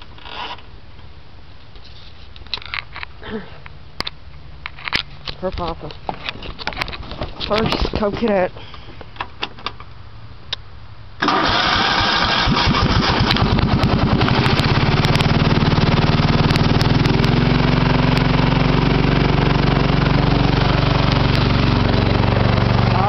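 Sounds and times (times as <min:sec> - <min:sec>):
electric starter cranking: 0:11.2 - 0:17.2
lawn tractor engine running: 0:11.2 - 0:23.0.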